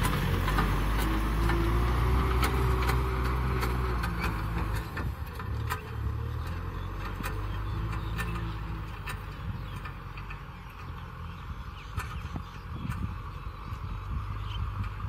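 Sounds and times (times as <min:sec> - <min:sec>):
plough clicks and clanks: 0:00.0 - 0:11.0
tractor diesel engine: 0:00.0 - 0:15.0.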